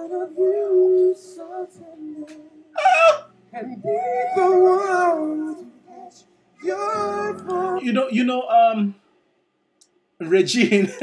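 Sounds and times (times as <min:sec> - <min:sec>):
man and woman singing in harmony: 0:00.0 - 0:08.6
piano: 0:00.0 - 0:09.1.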